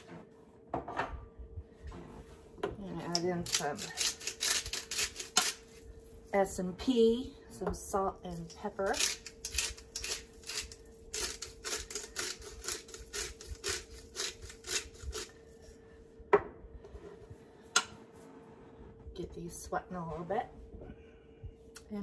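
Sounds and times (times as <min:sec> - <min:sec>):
pepper grinder grinding: 0:03.1 - 0:05.6, 0:08.8 - 0:15.4.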